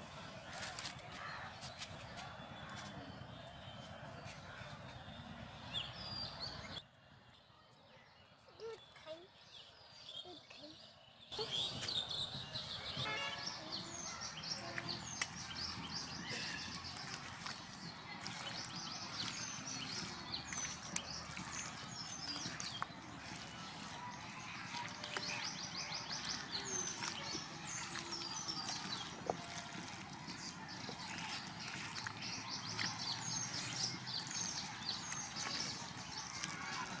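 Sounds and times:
small birds chirping: 7.7s - 37.0s
hands mixing raw chicken: 13.1s - 37.0s.

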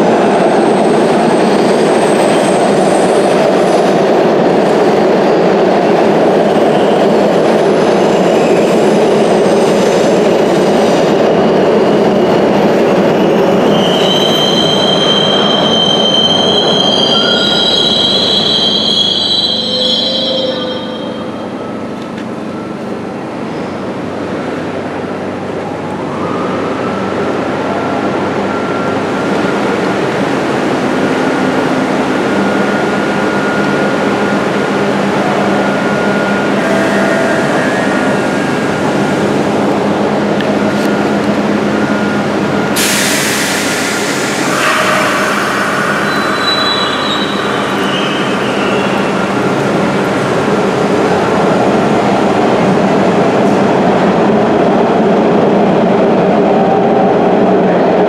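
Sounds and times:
subway train rumbling: 0.0s - 58.0s
train wheel squeal: 6.4s - 22.8s, 31.0s - 38.7s, 41.8s - 50.2s
loud hiss: 42.7s - 49.0s.

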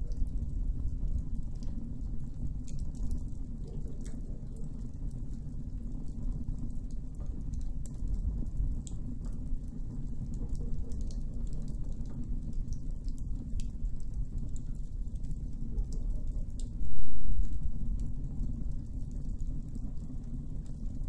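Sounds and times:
low steady rumble: 0.0s - 21.0s
campfire crackling: 10.9s - 21.0s.

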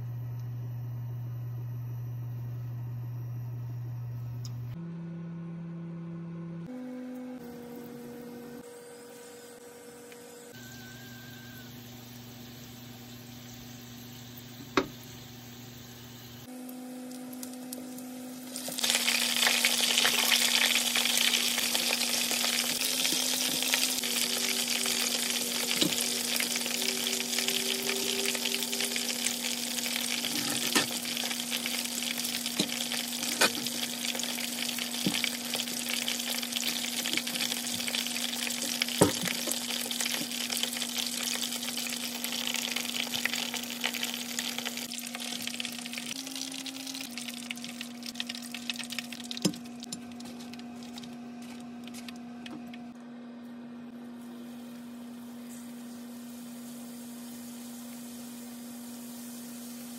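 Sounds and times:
low hum: 0.0s - 59.9s
dumplings sizzling in hot oil: 10.5s - 16.5s, 17.1s - 51.0s, 55.7s - 59.9s.

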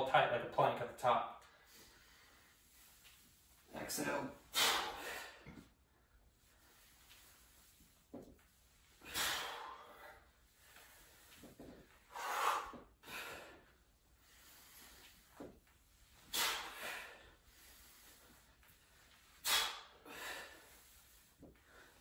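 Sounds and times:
forceful exhales: 4.5s - 5.6s, 9.0s - 10.2s, 12.1s - 13.6s, 16.3s - 18.4s, 19.4s - 22.0s.

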